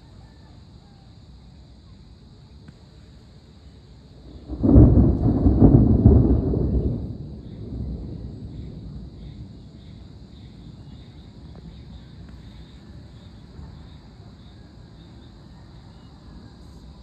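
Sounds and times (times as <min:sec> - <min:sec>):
crickets chirping: 0:00.0 - 0:17.0
wind rumble: 0:04.1 - 0:14.2
distant thunder: 0:04.2 - 0:12.3.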